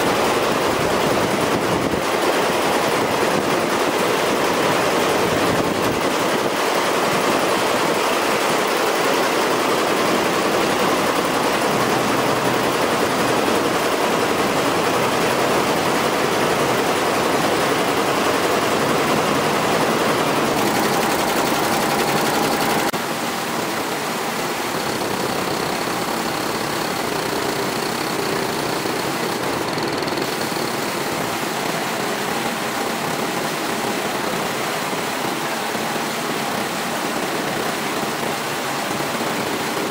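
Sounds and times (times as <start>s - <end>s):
embroidery machine clattering: 0.0s - 31.6s.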